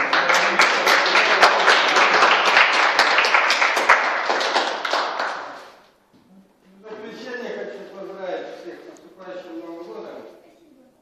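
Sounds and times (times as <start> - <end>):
group clapping in applause: 0.0 - 5.8.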